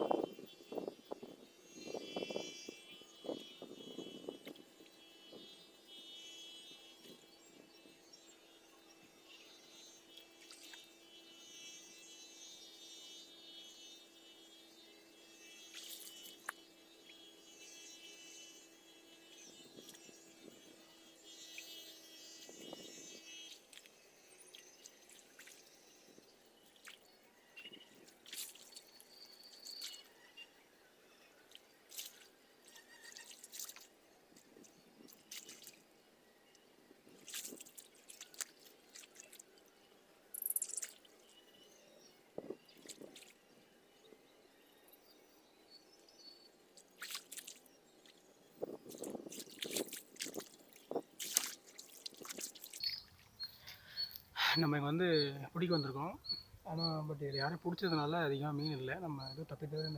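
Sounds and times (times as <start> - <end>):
hands splashing in water: 28.2 - 28.8, 35.1 - 35.8, 37.2 - 39.4, 47.0 - 47.6, 49.0 - 52.9
sloshing while wading: 28.2 - 30.0, 31.5 - 33.9, 35.1 - 35.8, 37.2 - 39.4, 46.9 - 48.2, 49.0 - 53.4.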